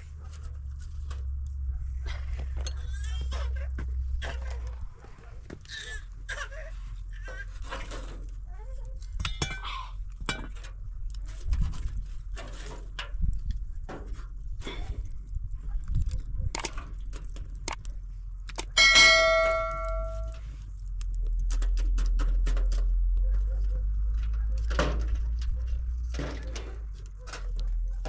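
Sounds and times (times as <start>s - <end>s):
clinks and knocks of coals stirred: 9.1s - 11.4s, 18.6s - 20.4s
metal brazier ringing clang: 18.6s - 20.4s.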